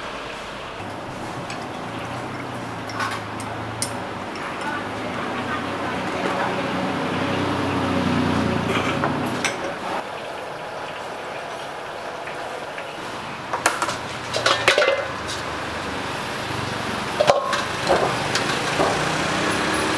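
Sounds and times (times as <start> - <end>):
passing vehicle engine hum: 0.0 - 10.8, 13.0 - 19.9
wok clanking on burner stand: 0.8 - 6.8, 8.6 - 10.0, 13.5 - 15.6, 17.1 - 19.9.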